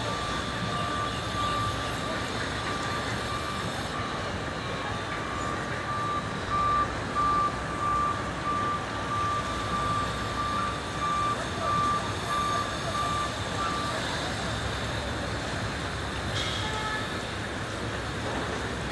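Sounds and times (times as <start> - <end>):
turboprop engines droning: 0.0 - 18.9.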